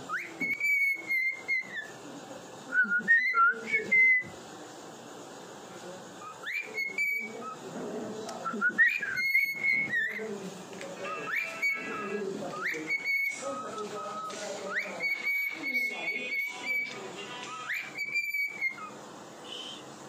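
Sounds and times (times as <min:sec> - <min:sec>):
cockatiel whistling: 0:00.0 - 0:02.0, 0:02.8 - 0:04.4, 0:06.2 - 0:07.6, 0:08.4 - 0:10.3, 0:11.0 - 0:19.8.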